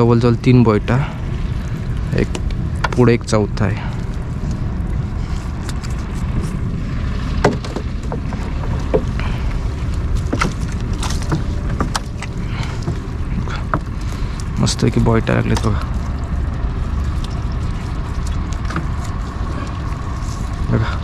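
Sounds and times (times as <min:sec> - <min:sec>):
wind rumble on microphone: 0:00.0 - 0:21.0
net clicking and knocking on hull: 0:07.2 - 0:20.7.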